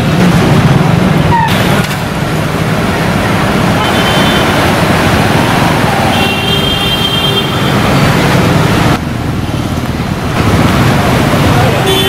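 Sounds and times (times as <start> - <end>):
cars driving through water: 0.0 - 6.7, 7.5 - 12.0.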